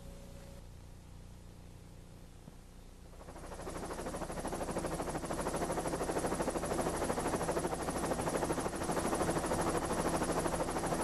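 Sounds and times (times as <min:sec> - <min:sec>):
helicopter engine and rotor: 0:03.0 - 0:11.0.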